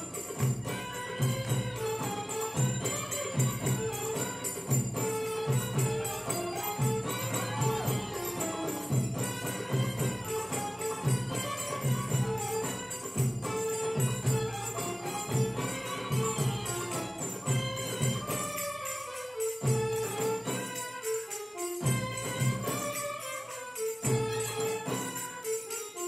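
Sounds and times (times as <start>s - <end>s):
belly dance music: 0.0s - 18.8s
jingling percussion: 0.0s - 26.0s
repeating drum beat: 0.0s - 26.0s.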